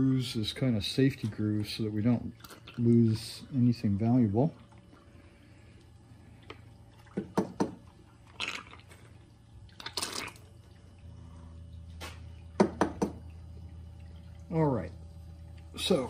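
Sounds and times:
low hum: 0.0 - 16.0
squeeze bottle sucking water: 8.1 - 11.1.

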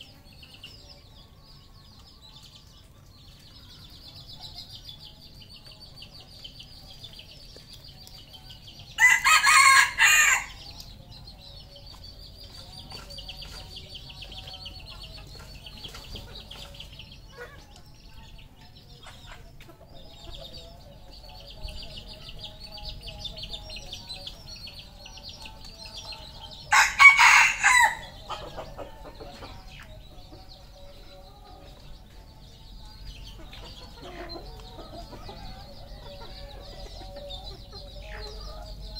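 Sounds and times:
rooster crowing: 9.0 - 10.6, 26.7 - 28.1.

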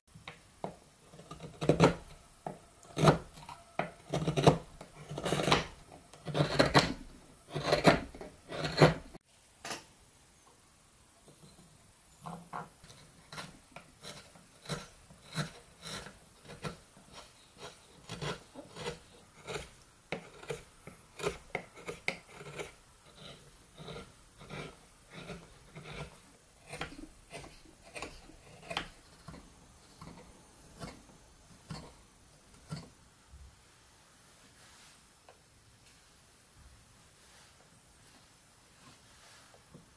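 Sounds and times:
chisel slicing wood: 1.2 - 2.2, 3.0 - 9.1, 13.3 - 29.4.

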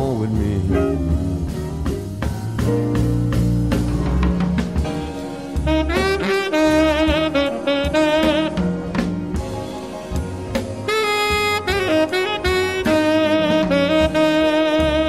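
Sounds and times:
bass and drums: 0.0 - 15.0
tenor saxophone solo: 5.5 - 15.0.

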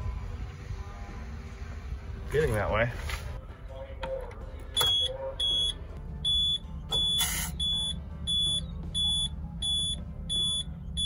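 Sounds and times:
steady low hum: 0.0 - 11.0
electronic warning beeper: 4.8 - 11.0.

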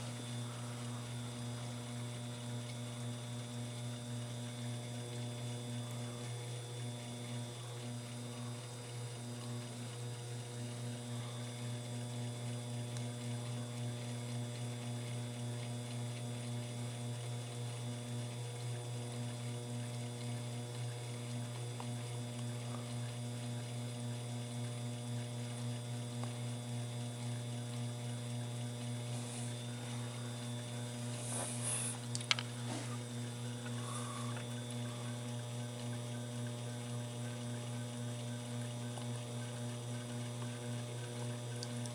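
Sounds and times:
mill spindle motor humming: 0.0 - 41.9.

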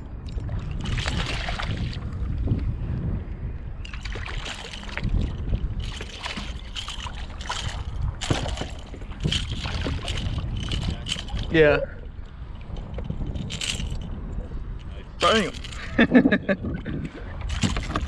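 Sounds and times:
wind rumble on microphone: 0.0 - 18.0
fish splashing at water surface: 3.9 - 11.4.

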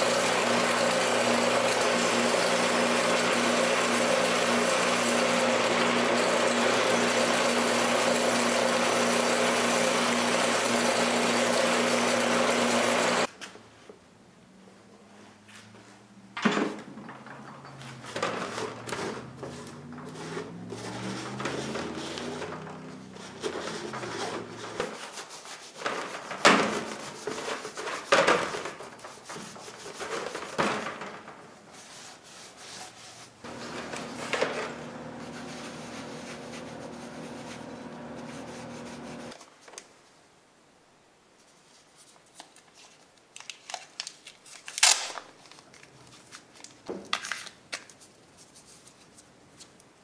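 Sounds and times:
scraping and knocks on metal tray: 16.6 - 25.0
paper towel rubbing metal: 35.1 - 39.4.

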